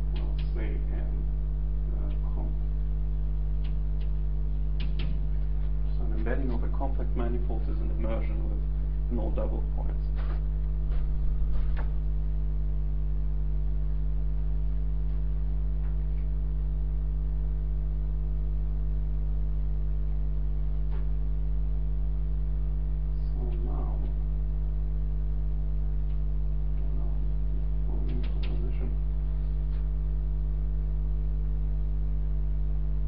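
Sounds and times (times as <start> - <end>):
electrical mains hum: 0.0 - 33.0
faint clicks: 3.6 - 4.2.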